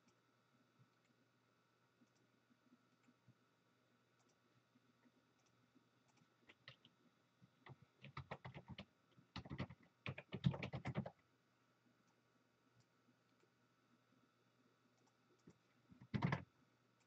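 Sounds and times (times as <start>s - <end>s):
typing on keyboard: 6.1s - 6.9s, 7.6s - 11.2s, 15.0s - 16.5s.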